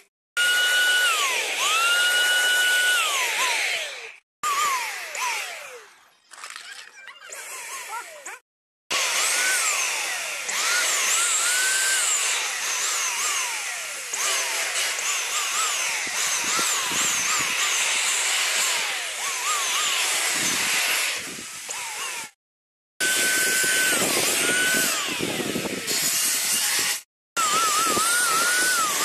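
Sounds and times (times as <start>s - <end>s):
electric paint sprayer hissing: 0.0s - 5.9s, 7.3s - 22.4s, 23.0s - 29.0s
rising and falling whistling tones: 27.4s - 29.0s.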